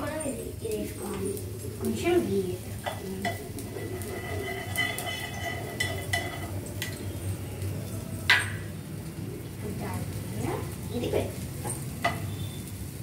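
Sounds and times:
food sizzling in a frying pan: 0.0s - 13.0s
spatula clinking on pan and bowl: 2.8s - 7.2s, 8.3s - 8.7s, 11.6s - 12.6s.

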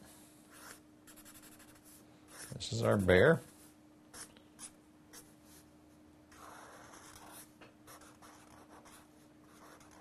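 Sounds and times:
pen scratching on paper: 0.5s - 3.1s, 6.3s - 10.0s.

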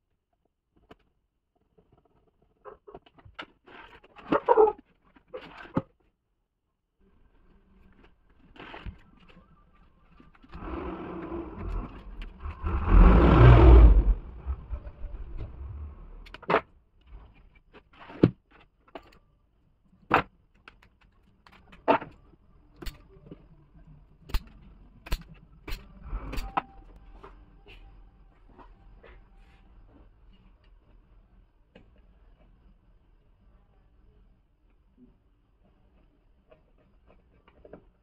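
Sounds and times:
wires scraping through board: 10.4s - 18.2s.

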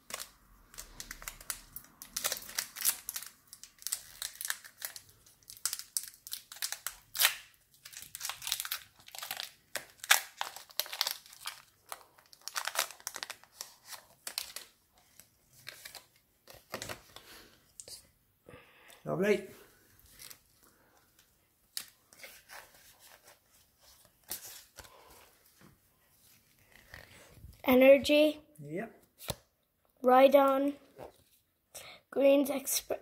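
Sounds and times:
foil wrapper crinkling and tearing: 0.0s - 17.3s.

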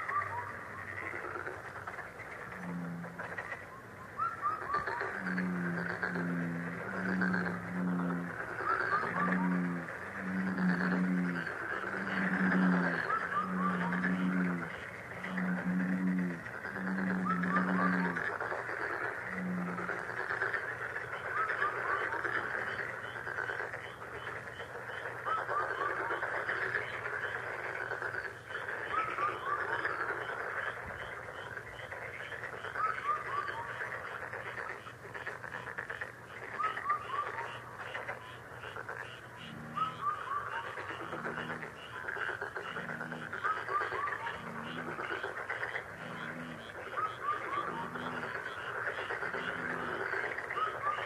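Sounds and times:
chorus of frogs or insects: 0.0s - 51.0s
low pulsed calls: 2.5s - 18.2s, 39.4s - 41.6s.

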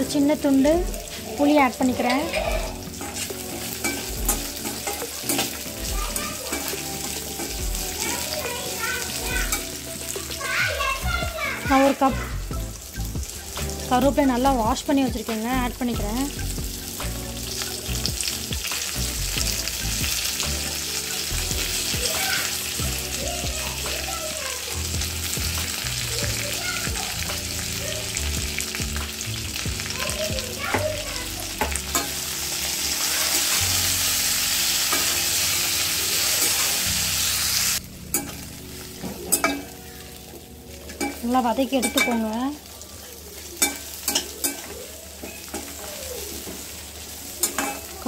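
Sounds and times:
food sizzling in hot oil: 0.0s - 48.0s
fork clicking against pan: 3.8s - 5.6s, 43.6s - 45.8s.

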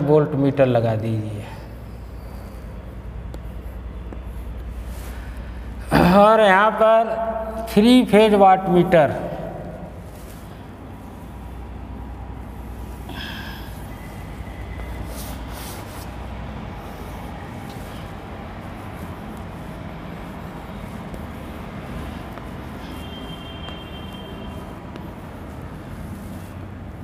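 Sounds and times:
chalk drawing on blackboard: 13.8s - 27.0s
chalk squeak: 16.9s - 26.6s.

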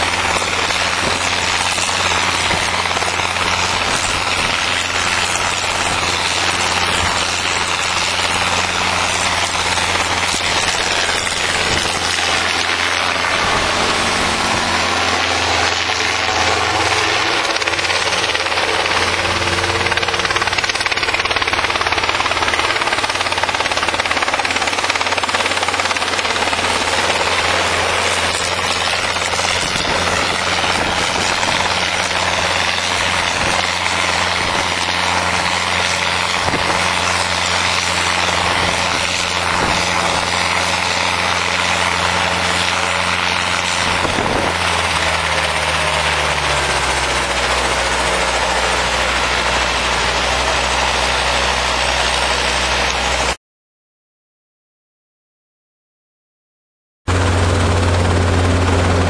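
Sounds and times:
helicopter running: 0.0s - 53.4s, 57.1s - 59.0s.

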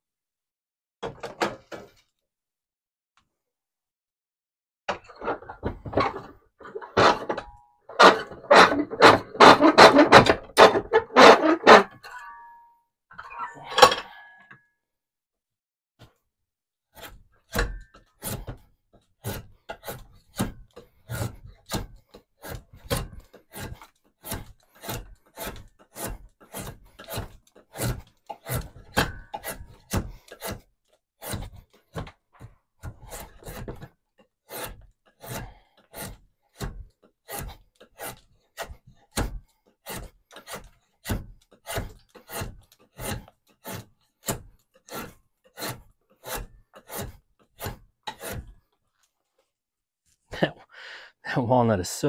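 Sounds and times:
drawknife shaving wood: 16.9s - 49.1s.

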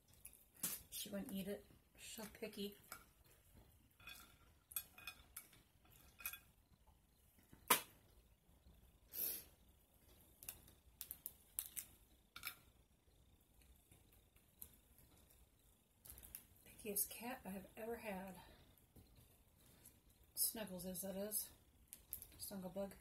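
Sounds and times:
crawfish shells cracking: 10.3s - 12.8s, 13.6s - 16.6s, 21.9s - 22.4s.

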